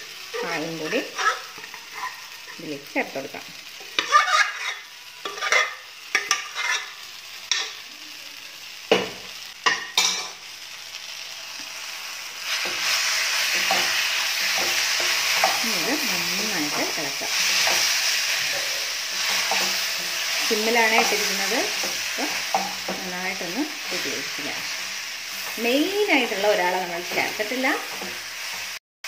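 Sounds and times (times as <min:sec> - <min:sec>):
steady sizzle: 0:00.0 - 0:28.8
wooden spatula stirring in pan: 0:12.4 - 0:28.8.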